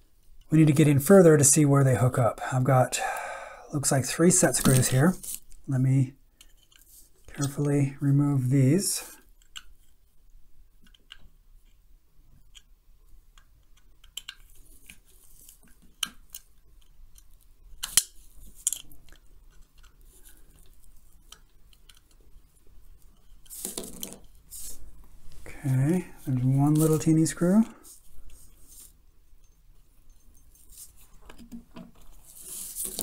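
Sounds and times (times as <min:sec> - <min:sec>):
small metal clicks and scrapes: 0:06.4 - 0:07.8, 0:13.4 - 0:24.8.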